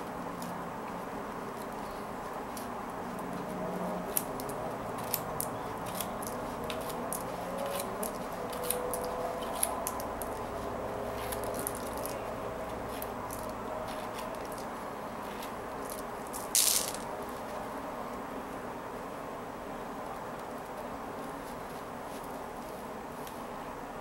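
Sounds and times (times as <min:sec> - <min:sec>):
plastic beads clicking and rattling: 0:11.2 - 0:12.2, 0:15.8 - 0:17.1.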